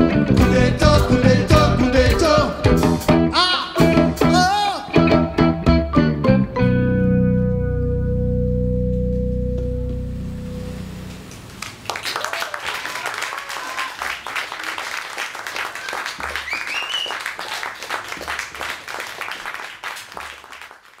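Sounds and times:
live band chord: 0.0 - 11.6
audience applauding: 11.5 - 21.0
audience cheers and shouts: 12.2 - 14.7.

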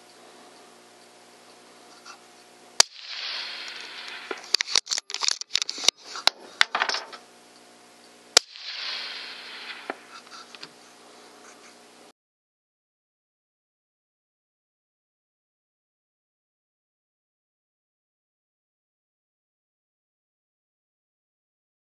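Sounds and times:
rifle shots: 2.8 - 7.2, 8.4 - 10.2.

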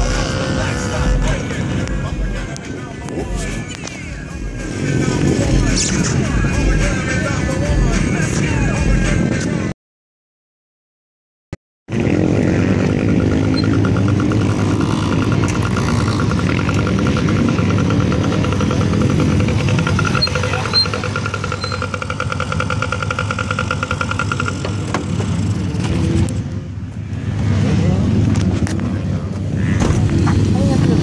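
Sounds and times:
mini dirt bike engine running: 11.9 - 26.2.

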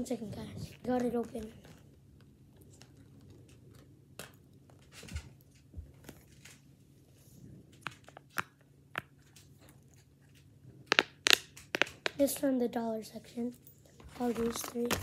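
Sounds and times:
silicone toy rustling in hands: 13.9 - 15.0.

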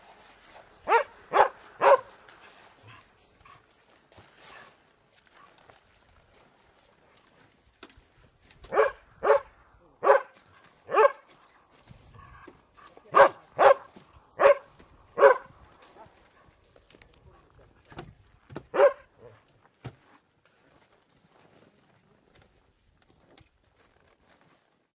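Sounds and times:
dog barking: 0.8 - 2.1, 8.7 - 11.2, 13.1 - 15.5, 18.7 - 19.4.

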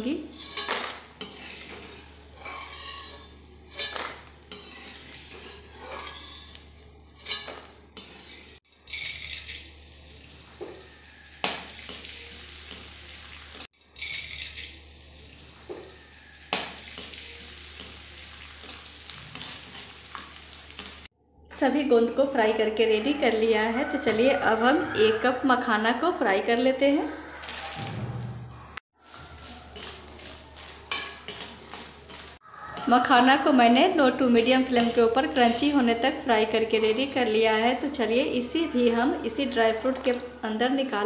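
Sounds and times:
metal spoon scraping a pan: 0.0 - 9.8, 13.7 - 14.9, 15.8 - 21.1, 28.6 - 37.4
frying sizzle: 0.0 - 21.1, 27.4 - 40.4.

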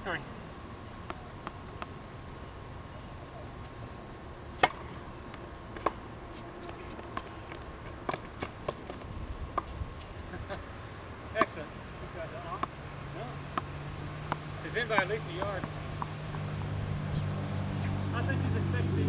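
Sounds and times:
tennis balls bouncing on hard court: 1.0 - 2.0, 4.6 - 9.7, 12.4 - 12.8, 13.5 - 18.0
tennis balls struck by rackets: 1.0 - 2.0, 4.5 - 9.7, 11.4 - 11.7, 12.4 - 12.8, 13.5 - 18.0.

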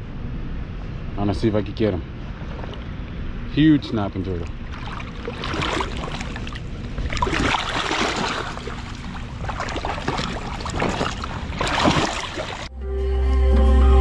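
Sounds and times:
water splashing and sloshing: 2.1 - 12.7.

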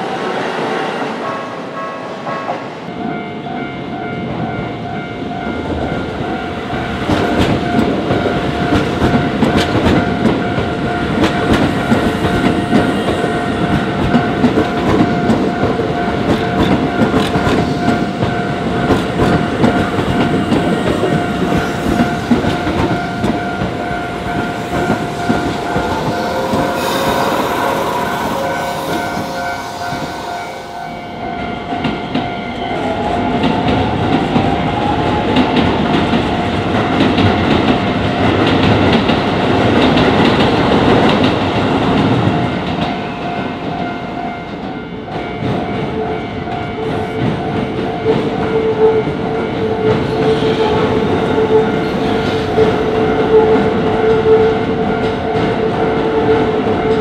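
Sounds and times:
level crossing warning bell: 1.2 - 34.9, 41.8 - 57.0
train wheels clattering on rails: 1.2 - 57.0
train motor whine: 18.9 - 31.5.

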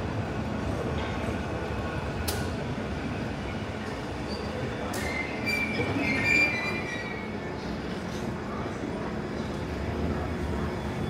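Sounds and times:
high wheel squeal: 4.2 - 7.6.

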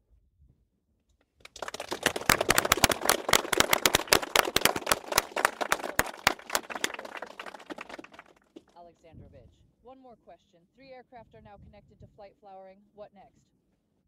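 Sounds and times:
crowd applauding: 1.4 - 8.7.

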